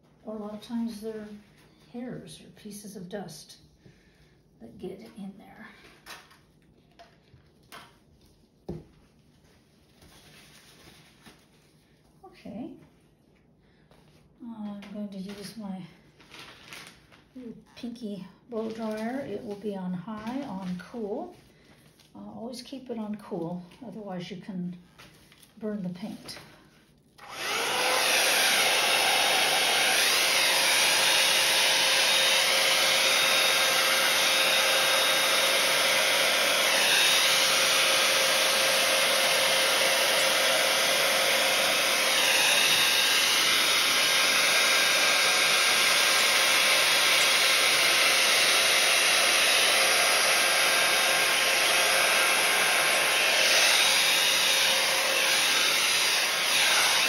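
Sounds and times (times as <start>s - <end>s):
hair dryer running: 27.2s - 57.0s.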